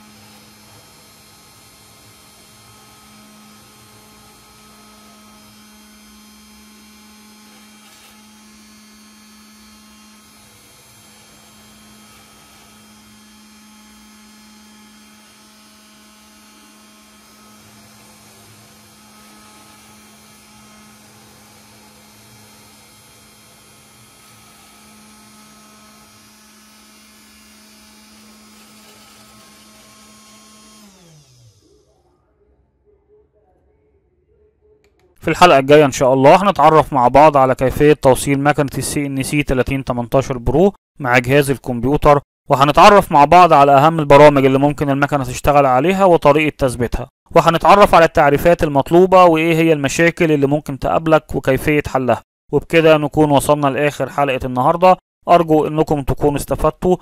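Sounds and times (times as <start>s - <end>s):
spindle motor engraving plastic: 0.0s - 31.9s.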